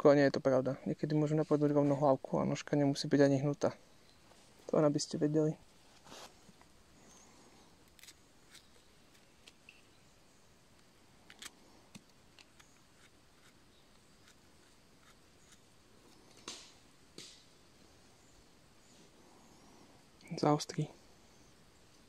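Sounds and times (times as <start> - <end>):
knife scraping mushroom stem: 7.9 - 9.6, 12.4 - 15.8.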